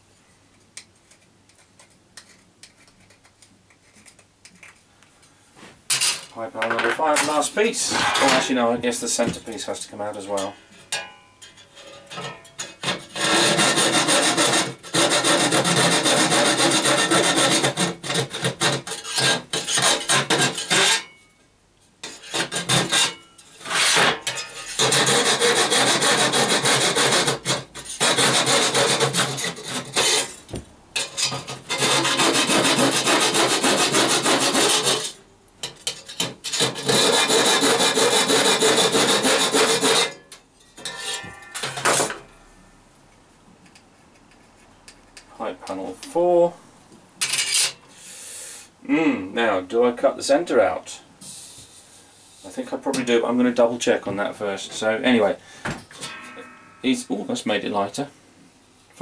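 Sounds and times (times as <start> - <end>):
hacksaw cutting sheet metal: 7.2 - 8.6, 10.4 - 21.2, 22.0 - 30.4, 31.0 - 42.4.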